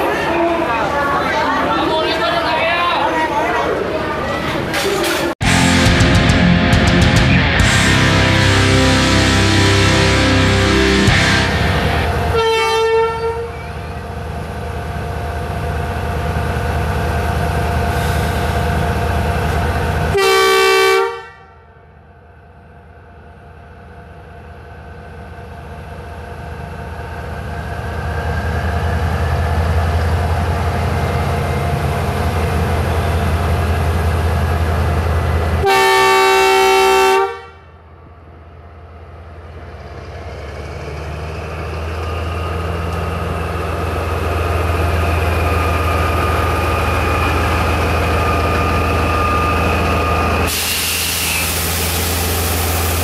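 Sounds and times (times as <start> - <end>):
locomotive engine drone: 5.4 - 53.0
locomotive horn blast: 7.6 - 13.9, 20.1 - 21.8, 35.6 - 37.8.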